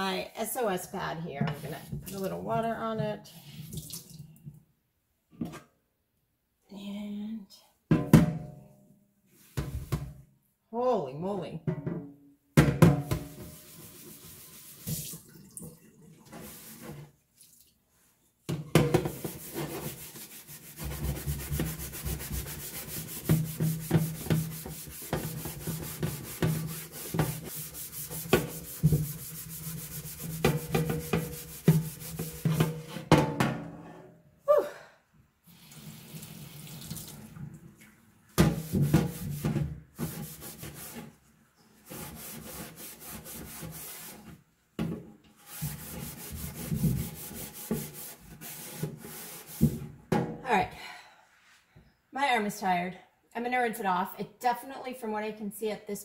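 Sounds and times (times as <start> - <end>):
steel wool scrubbing metal sheet: 13.1 - 15.1, 19.0 - 33.0, 38.5 - 41.2, 41.8 - 44.4, 45.4 - 49.7.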